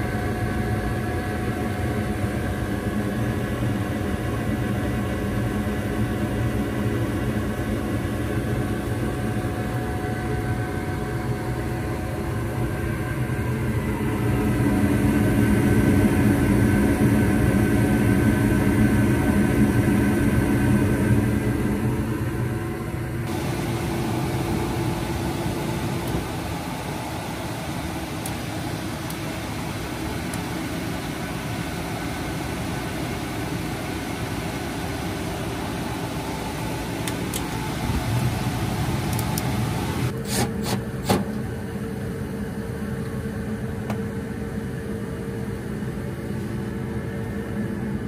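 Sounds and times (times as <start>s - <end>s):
furnace mechanical hum: 0.0s - 48.0s
steady tone: 23.3s - 40.1s
inducer motor rattle: 23.3s - 41.6s.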